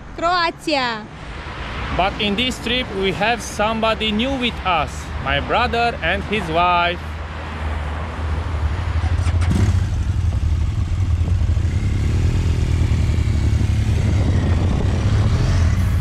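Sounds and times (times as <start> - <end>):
motorcycle engines running: 8.5 - 16.0.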